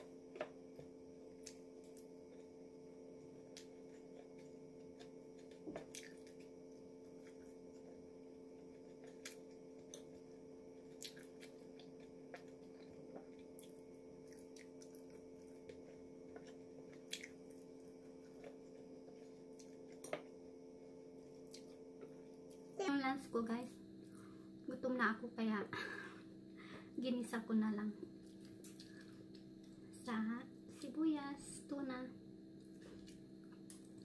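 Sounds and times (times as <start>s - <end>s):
steady low hum: 0.0s - 34.0s
chewing: 3.5s - 8.0s, 10.8s - 20.2s, 28.2s - 29.8s.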